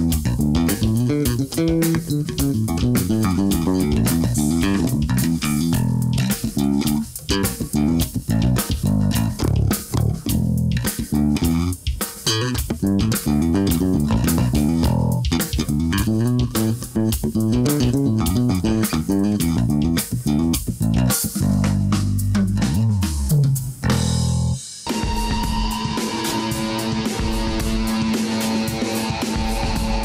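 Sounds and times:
drum kit: 0.0s - 30.0s
electric bass guitar: 0.0s - 30.0s.

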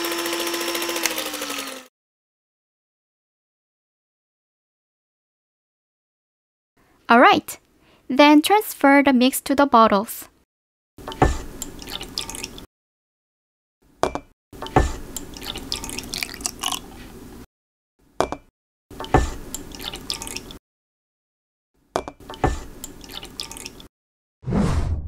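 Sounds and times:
batter pouring and dripping: 15.1s - 16.9s, 19.5s - 20.6s, 22.8s - 23.9s.

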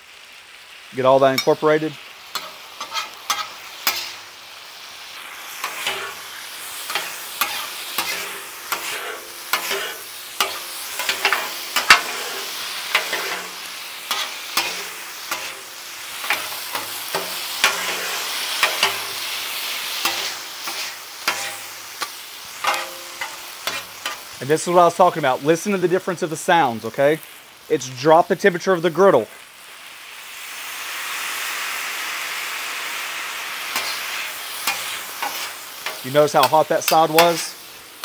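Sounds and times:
food sizzling on griddle: 0.0s - 38.0s
metal spatulas scraping griddle: 2.4s - 4.2s, 5.6s - 24.3s, 33.7s - 37.6s.

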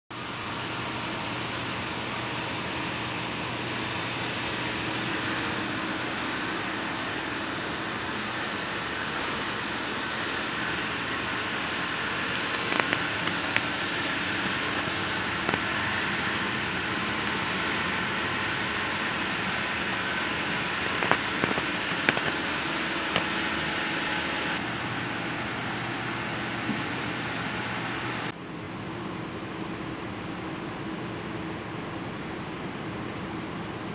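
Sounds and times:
high-pitched whine: 0.2s - 33.9s
roasting machine motor hum and hiss: 0.2s - 33.9s.

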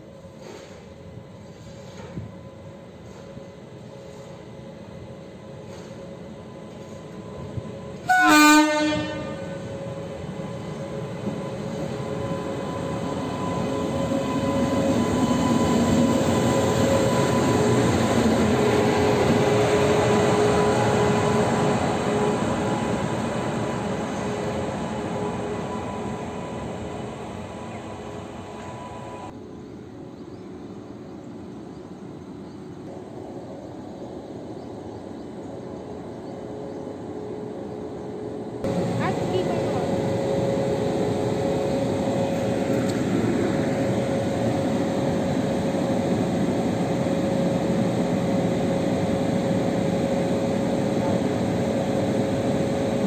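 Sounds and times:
electric locomotive hum: 0.0s - 53.0s
locomotive horn blast: 8.0s - 9.7s
locomotive running noise: 38.6s - 53.0s.

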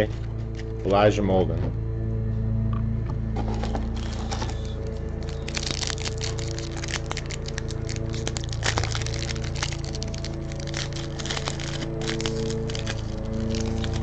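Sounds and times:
background music: 0.0s - 14.0s
card pack wrapper crinkling: 3.4s - 14.0s.

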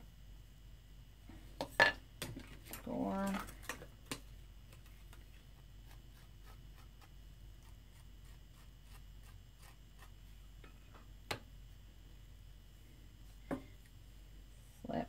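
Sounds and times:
tool scratching clay: 5.8s - 10.2s.

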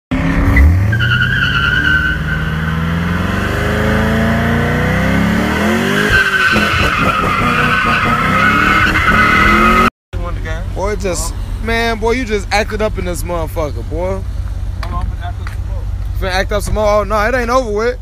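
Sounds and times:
car engine revving hard: 0.1s - 9.9s
tires squealing on pavement: 0.2s - 9.9s.

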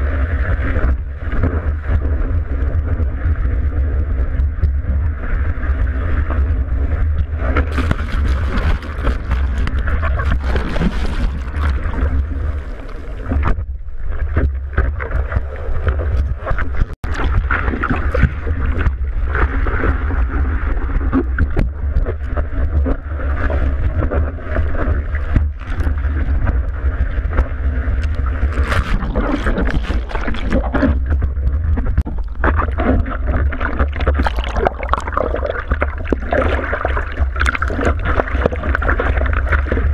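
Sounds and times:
wind buffeting microphone: 0.0s - 34.0s
whitewater rushing and splashing: 7.4s - 13.4s.

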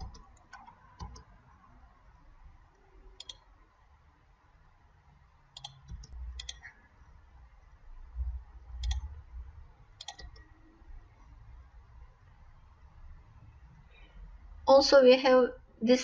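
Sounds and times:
mouse buttons clicking: 3.2s - 3.5s, 5.6s - 6.7s, 8.8s - 9.1s, 10.0s - 10.5s.

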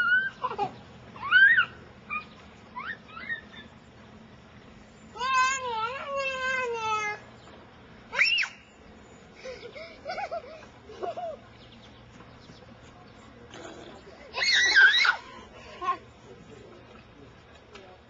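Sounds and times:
children squealing: 0.0s - 3.8s, 8.1s - 8.8s, 14.3s - 15.4s.

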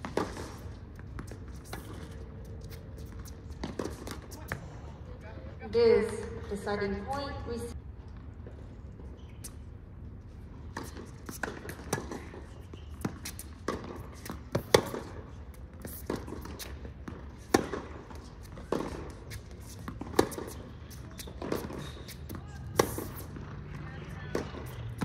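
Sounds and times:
tennis ball bouncing: 0.0s - 4.6s, 10.7s - 25.0s
racquet hitting tennis ball: 15.9s - 23.4s.

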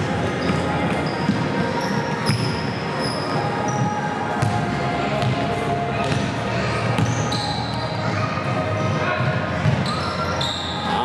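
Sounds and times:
din of play and spectators: 0.0s - 11.0s
shoe squeaks: 0.2s - 4.2s, 7.0s - 8.1s, 9.8s - 11.0s
basketball bouncing on court: 3.7s - 5.4s, 7.0s - 7.5s, 9.2s - 10.0s.

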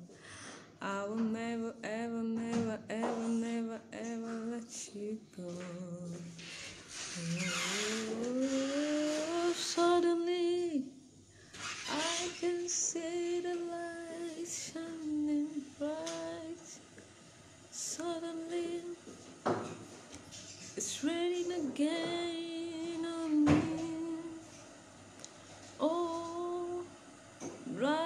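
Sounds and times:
woman singing unaccompanied: 0.8s - 11.0s, 11.8s - 16.9s, 17.7s - 19.1s, 20.8s - 24.6s, 25.8s - 27.0s, 27.6s - 28.0s.

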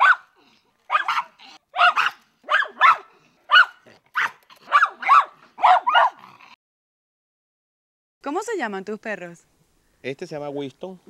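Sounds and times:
dogs barking: 0.0s - 6.5s.

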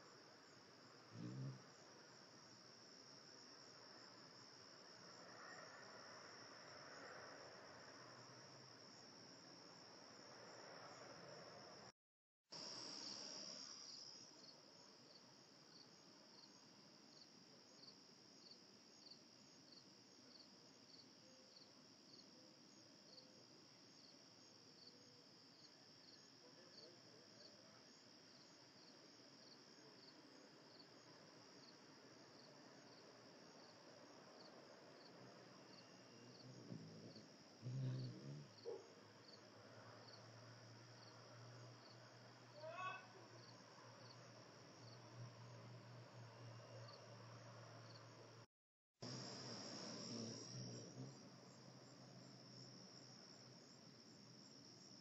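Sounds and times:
insect chirp: 0.0s - 11.9s, 12.6s - 55.0s
insects trilling: 35.4s - 39.4s, 49.0s - 52.4s.

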